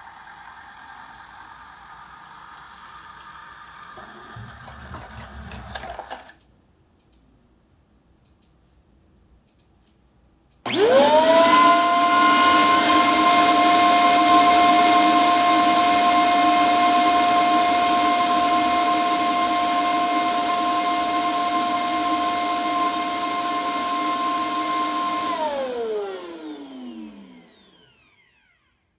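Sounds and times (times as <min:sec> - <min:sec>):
vacuum suction motor whining: 0:10.6 - 0:28.6.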